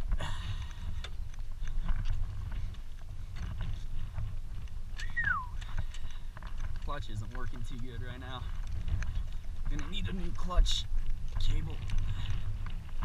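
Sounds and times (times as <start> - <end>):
dirt bike engine rumble: 0.0 - 13.0
stones crunching under tyres: 0.0 - 13.0
falling pitch tone: 5.0 - 5.6.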